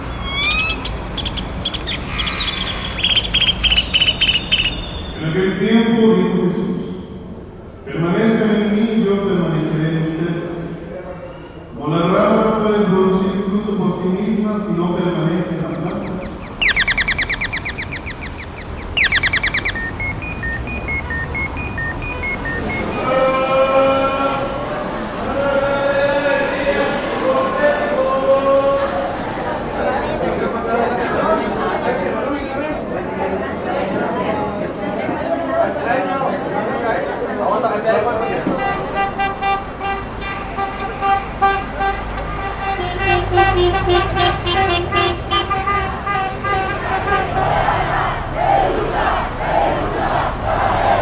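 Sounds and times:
car alarm falling chirps: 0:00.0 - 0:05.3, 0:15.7 - 0:23.1
car alarm beeping pattern: 0:03.0 - 0:05.2, 0:15.7 - 0:23.3
vehicle horn short blasts: 0:38.6 - 0:47.2.

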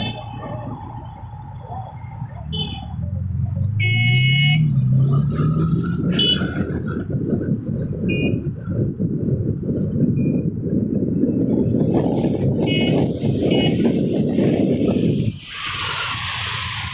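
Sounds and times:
road traffic: 0:00.0 - 0:16.9
wind rushing over microphone: 0:00.0 - 0:16.9
vehicle engine rising in pitch: 0:00.4 - 0:08.5
vehicle horn toots: 0:12.6 - 0:13.9.

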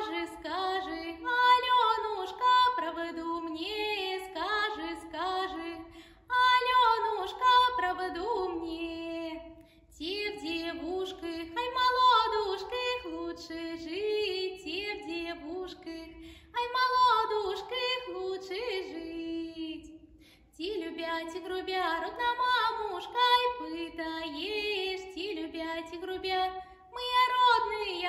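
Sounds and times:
woman singing unaccompanied: 0:00.0 - 0:20.0, 0:20.6 - 0:28.0
singer breathing: 0:16.2 - 0:16.5, 0:20.0 - 0:20.6.

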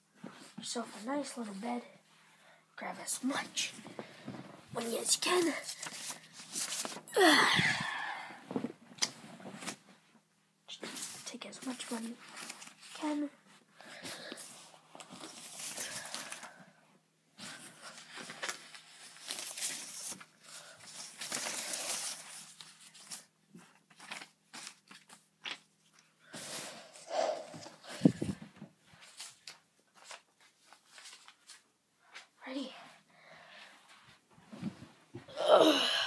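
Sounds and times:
paper bills rustling: 0:17.8 - 0:26.0.

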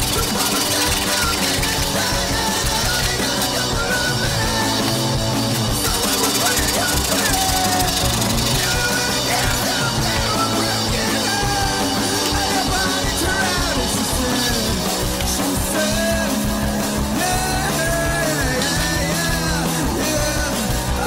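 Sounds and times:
rock music with singing: 0:00.0 - 0:21.0.

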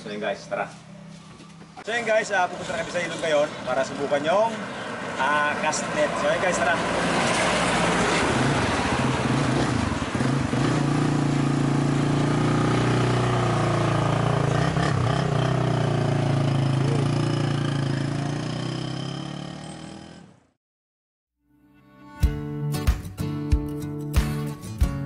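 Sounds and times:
small motorcycle engine idling: 0:08.4 - 0:20.2.

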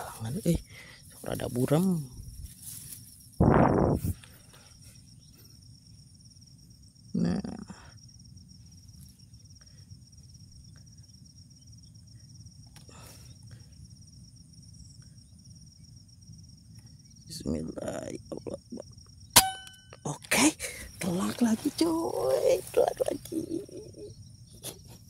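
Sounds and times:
faint rustle: 0:00.0 - 0:05.7, 0:20.9 - 0:24.0
insects chirring: 0:00.0 - 0:25.0.

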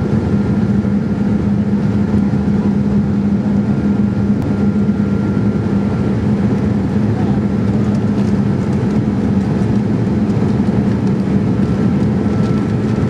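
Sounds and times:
airflow rushing in plane cabin: 0:00.0 - 0:13.0
jet engines humming: 0:00.0 - 0:13.0.

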